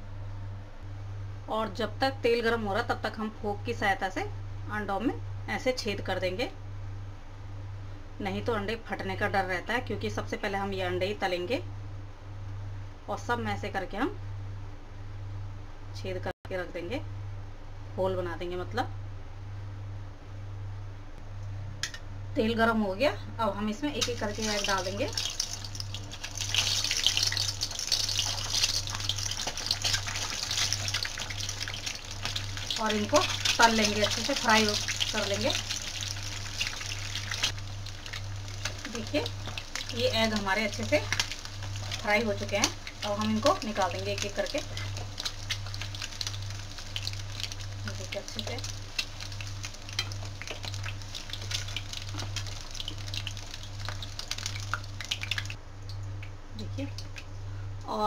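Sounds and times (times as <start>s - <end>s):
eggs sizzling in hot oil: 23.9s - 56.1s.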